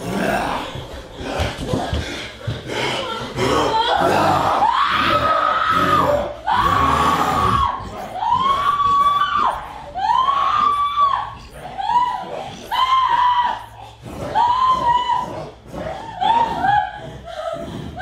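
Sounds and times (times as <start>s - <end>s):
person screaming: 3.4s - 13.7s.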